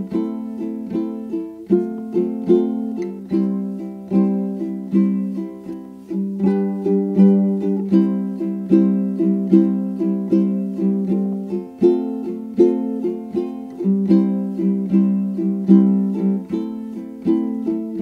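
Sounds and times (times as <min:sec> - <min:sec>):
plucked string music: 0:00.0 - 0:18.0.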